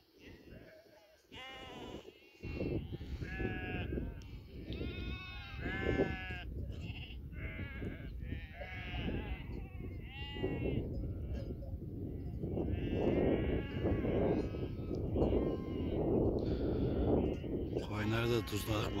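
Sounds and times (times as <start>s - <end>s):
sheep bleating: 0.3s - 19.0s.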